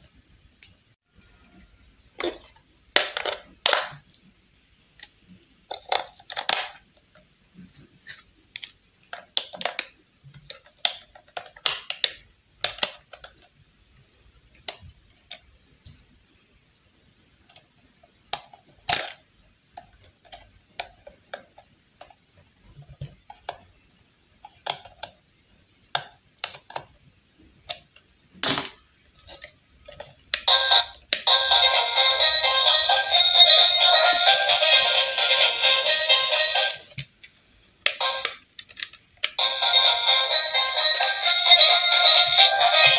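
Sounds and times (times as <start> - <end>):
music: 30.5 - 36.8, 39.4 - 42.9.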